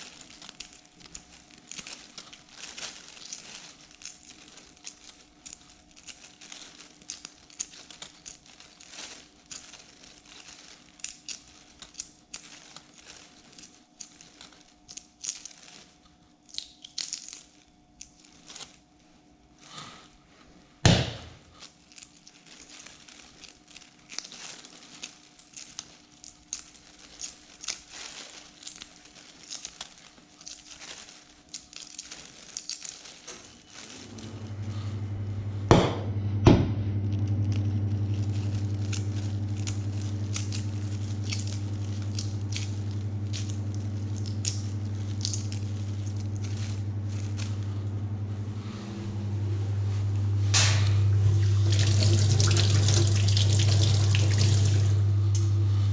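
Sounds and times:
eggshell crackling: 0:00.0 - 0:18.9, 0:21.6 - 0:34.3, 0:37.2 - 0:47.9, 0:50.6 - 0:55.6
plastic bag rustling: 0:00.0 - 0:35.3, 0:37.1 - 0:55.9
low machine hum: 0:31.8 - 0:55.9.

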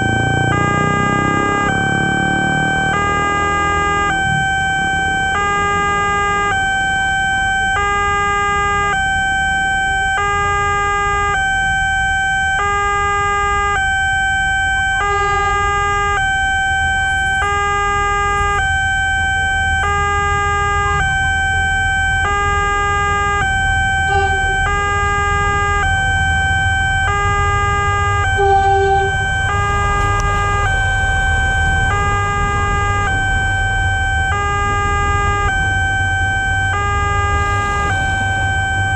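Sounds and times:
two-tone crossing alarm: 0:00.0 - 0:38.9
electric train rumble: 0:15.0 - 0:16.3, 0:23.9 - 0:36.0.

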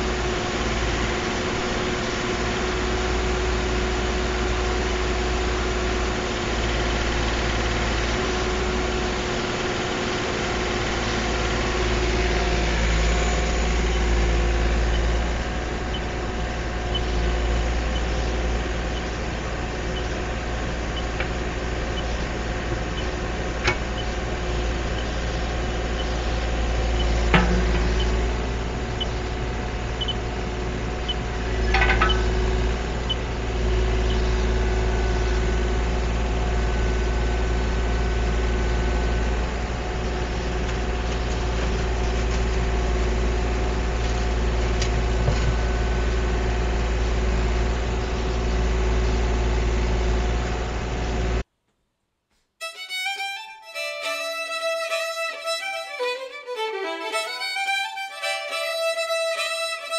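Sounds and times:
excavator diesel engine running: 0:00.0 - 0:51.4, 0:52.7 - 0:59.9
sharp knocks: 0:27.2 - 0:28.1, 0:31.7 - 0:32.4.

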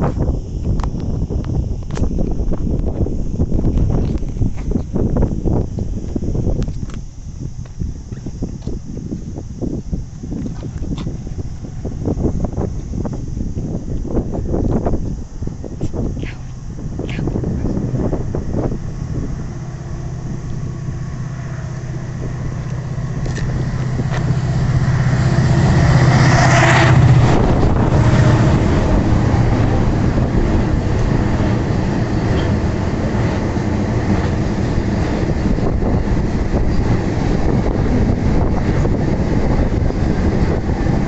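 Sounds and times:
diesel locomotive engine drone: 0:00.0 - 0:41.0
train wagons rumbling past: 0:17.5 - 0:41.0.

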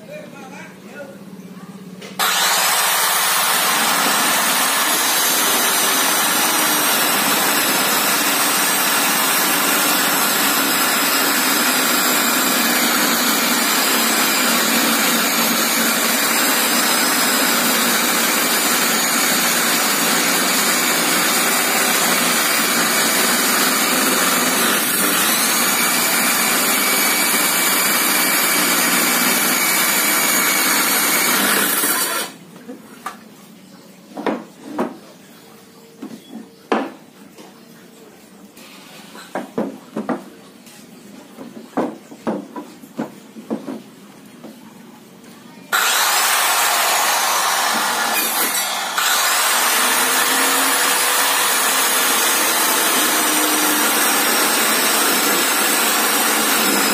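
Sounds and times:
circular saw cutting wood: 0:02.2 - 0:32.4, 0:45.7 - 0:56.9.

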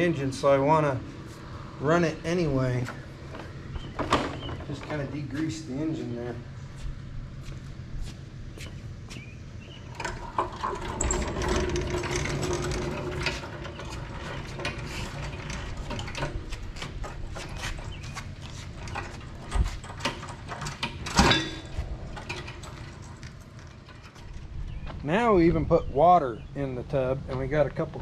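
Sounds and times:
washer rattling on wheels: 0:02.2 - 0:06.2, 0:09.7 - 0:25.4.

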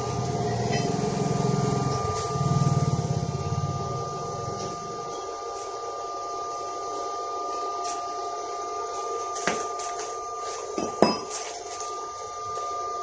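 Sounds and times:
welding machine two-tone whine: 0:00.0 - 0:13.0.

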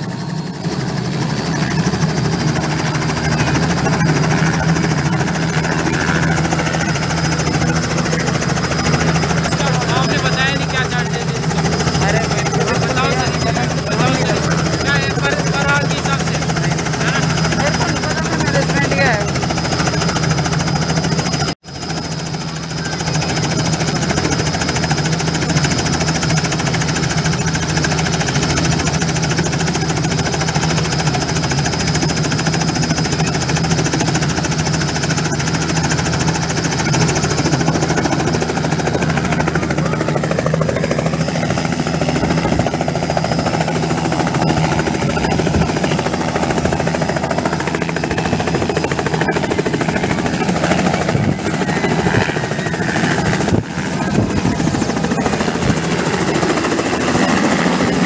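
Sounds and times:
helicopter rotor chop: 0:00.0 - 0:58.0
turbine whine: 0:00.0 - 0:58.0.

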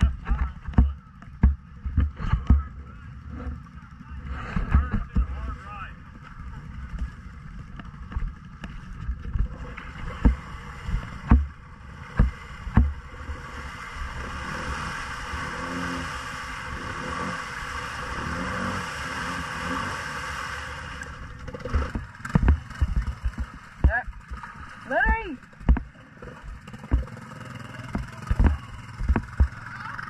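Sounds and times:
heavy thumps: 0:00.0 - 0:02.8, 0:04.4 - 0:05.4, 0:11.0 - 0:13.0, 0:21.7 - 0:27.2, 0:27.9 - 0:29.7
atv engine under load: 0:00.0 - 0:30.0
tires churning mud and water: 0:00.0 - 0:30.0.

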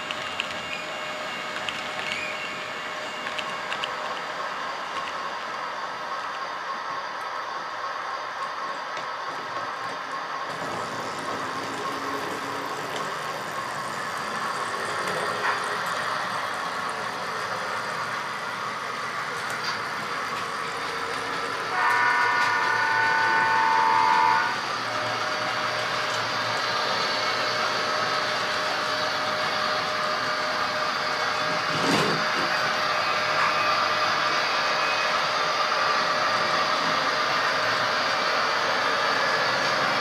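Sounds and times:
model trains rumbling: 0:00.0 - 0:40.0
electronic train horn chord: 0:21.7 - 0:24.6.

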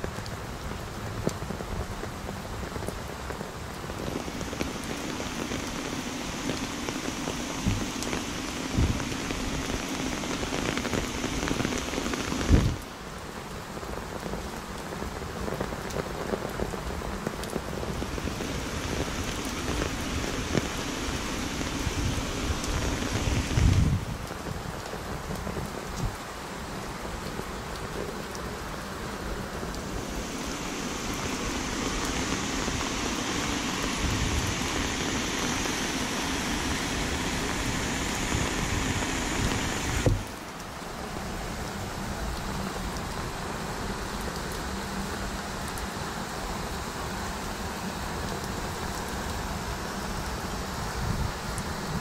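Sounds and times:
heavy rain hissing: 0:00.0 - 0:52.0.

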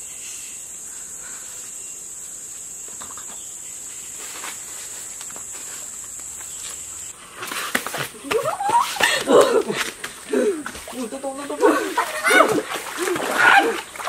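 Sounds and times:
forest insects droning: 0:00.0 - 0:14.0
hands and feet scuffing rock: 0:04.2 - 0:14.0.

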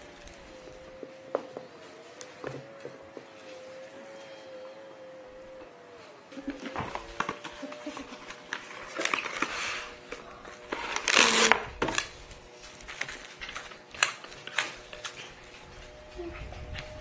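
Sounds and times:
cling film crinkling: 0:06.7 - 0:16.0
cling film ripping: 0:06.9 - 0:15.6.

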